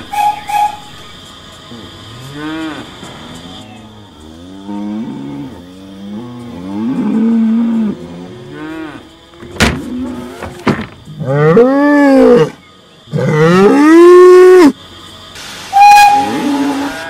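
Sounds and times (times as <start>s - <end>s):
cows mooing: 2.1s - 3.0s, 4.2s - 10.6s, 11.2s - 14.7s.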